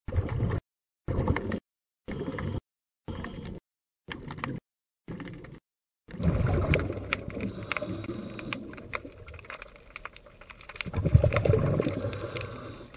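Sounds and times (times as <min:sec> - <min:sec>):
underwater rush of water: 0:06.1 - 0:12.9.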